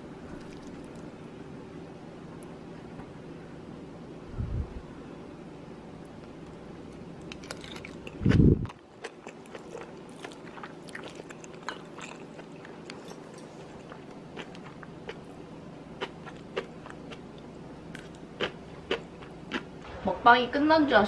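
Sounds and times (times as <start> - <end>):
steady low hum: 0.0 - 21.0
chewing food: 0.3 - 1.1, 6.2 - 19.7.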